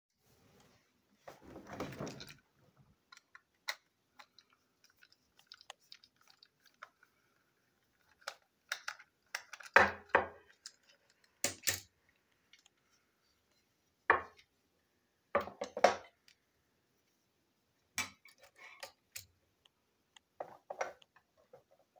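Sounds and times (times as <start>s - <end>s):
plastic toy parts clicking: 8.0s - 11.9s.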